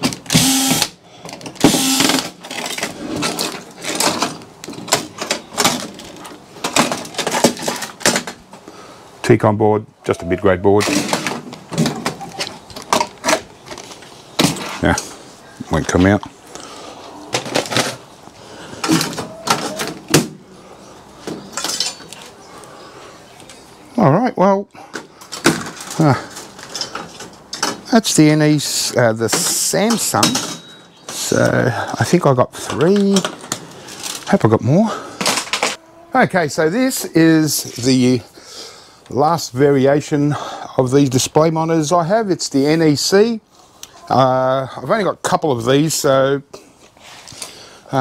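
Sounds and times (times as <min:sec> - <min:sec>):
electric drill-driver running: 0:00.3 - 0:00.9, 0:01.6 - 0:02.3
small metal parts clattering: 0:01.2 - 0:08.4, 0:21.5 - 0:22.3, 0:25.2 - 0:27.8, 0:29.4 - 0:30.8.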